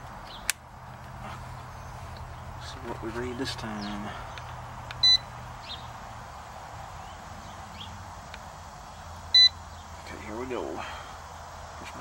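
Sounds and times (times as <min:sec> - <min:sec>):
short electronic beeps: 0:05.0 - 0:05.3, 0:09.4 - 0:09.6.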